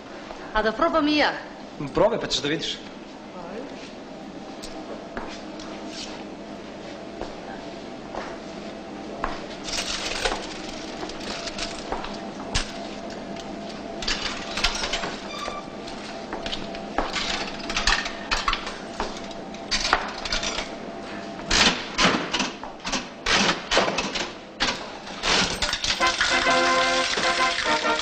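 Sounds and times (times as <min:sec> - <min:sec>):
coins clinking into metal tray: 0:25.4 - 0:28.0
music: 0:26.0 - 0:28.0.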